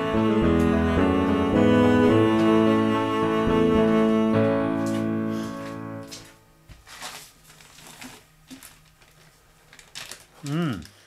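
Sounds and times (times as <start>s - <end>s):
music of sustained chords: 0.0s - 6.5s.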